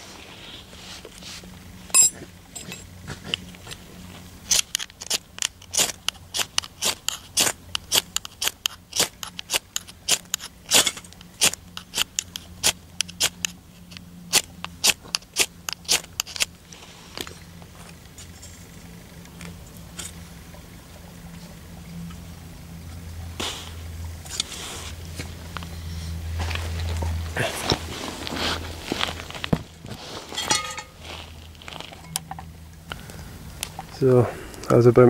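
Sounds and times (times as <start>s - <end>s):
firesteel rod scraping: 27.4s - 32.4s.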